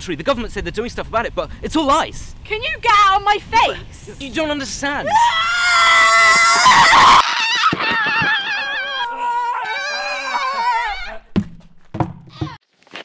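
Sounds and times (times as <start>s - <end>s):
person screaming: 5.0s - 11.3s.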